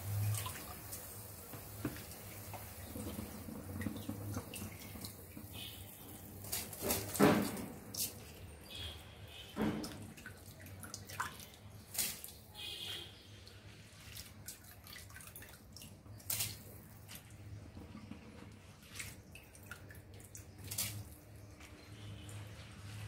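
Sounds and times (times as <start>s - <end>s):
rice splashing into water: 0.0s - 8.4s, 9.8s - 13.0s, 13.6s - 17.5s, 18.8s - 21.2s
water boiling in a pot: 0.0s - 23.0s.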